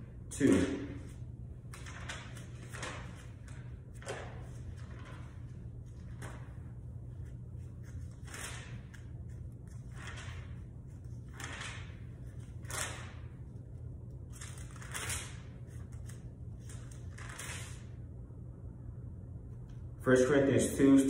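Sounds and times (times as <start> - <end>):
book pages turning: 14.3 - 17.9.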